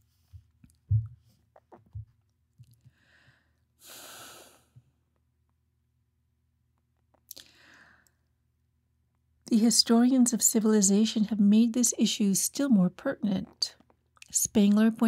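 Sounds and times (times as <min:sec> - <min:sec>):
person breathing quietly: 0:02.8 - 0:04.9, 0:07.4 - 0:08.3.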